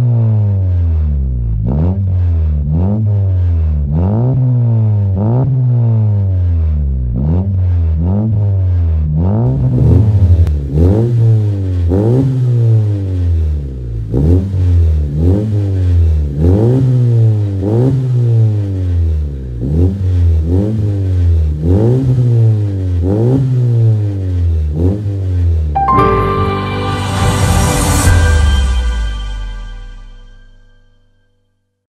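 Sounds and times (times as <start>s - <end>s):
car engine revving: 0.9s - 25.6s.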